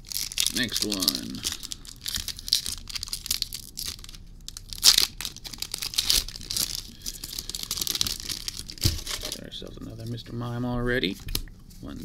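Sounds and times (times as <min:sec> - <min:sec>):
foil wrapper crinkling and tearing: 0:00.0 - 0:09.4.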